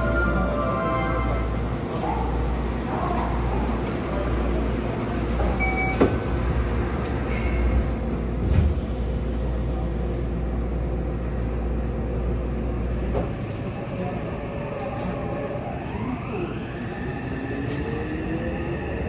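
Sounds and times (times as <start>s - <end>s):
train car low hum: 0.0s - 19.0s
short beeps: 5.6s - 6.1s.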